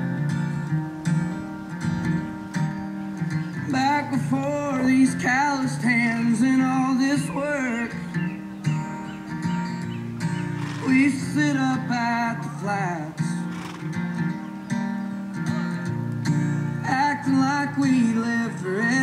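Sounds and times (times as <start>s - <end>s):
strummed acoustic guitar: 0.0s - 19.0s
person singing: 3.6s - 8.4s, 10.8s - 13.4s, 16.8s - 19.0s.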